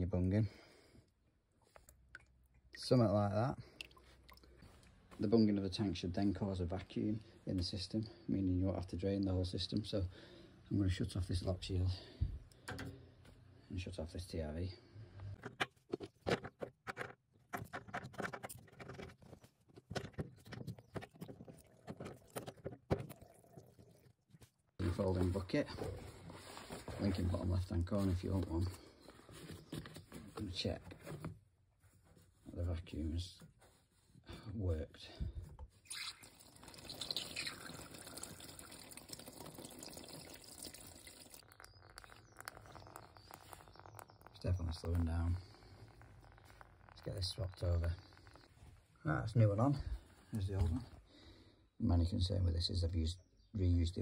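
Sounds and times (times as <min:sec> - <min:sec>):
water splashing into plastic bucket: 0:20.0 - 0:24.4, 0:35.7 - 0:44.4.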